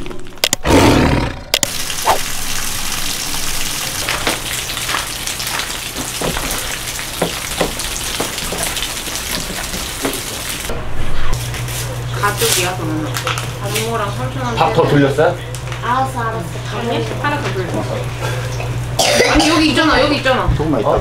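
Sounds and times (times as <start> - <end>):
water running and splashing: 1.7 - 10.7.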